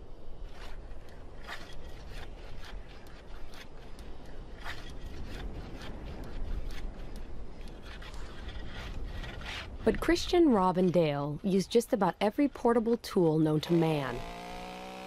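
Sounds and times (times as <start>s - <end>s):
rasping scrapes on snow: 0.4s - 9.8s.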